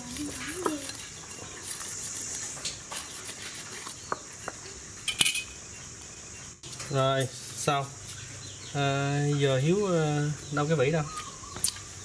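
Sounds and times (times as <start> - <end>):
knife scraping fish scales: 0.0 - 4.1.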